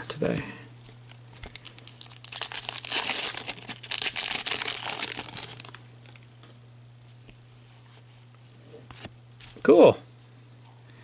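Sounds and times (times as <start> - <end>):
foil wrapper tearing and crinkling: 1.1 - 6.2.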